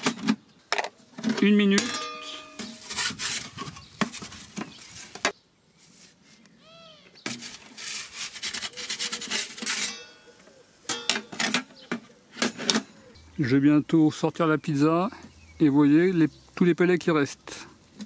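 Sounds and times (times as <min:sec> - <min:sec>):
metal peel scraping on stone: 0:01.8 - 0:05.1, 0:07.2 - 0:11.8.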